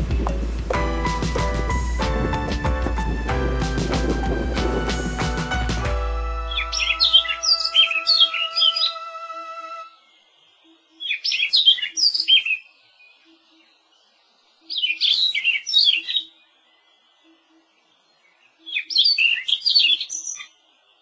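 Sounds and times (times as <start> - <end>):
background music: 0.0 - 10.0
songbird whistling: 6.3 - 12.6.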